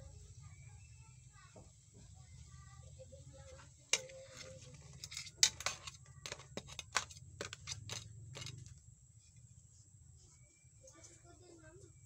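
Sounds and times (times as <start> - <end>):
utensil scraping a metal pan: 3.8 - 8.7.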